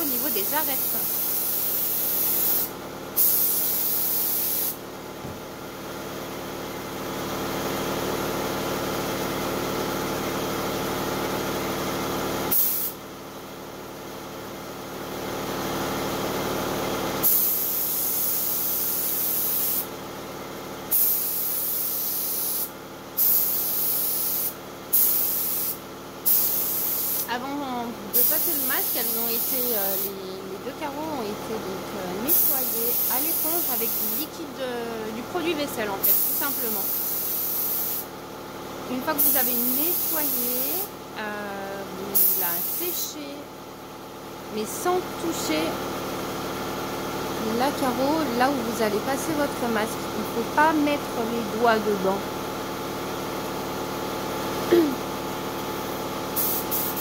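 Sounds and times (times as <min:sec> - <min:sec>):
air compressor hum: 0:00.0 - 0:57.0
airbrush spraying hiss: 0:00.1 - 0:04.8, 0:12.5 - 0:13.0, 0:17.2 - 0:19.9, 0:20.9 - 0:27.3, 0:28.1 - 0:30.1, 0:32.3 - 0:34.3, 0:36.0 - 0:38.1, 0:39.2 - 0:40.8, 0:42.2 - 0:43.0, 0:56.3 - 0:57.0.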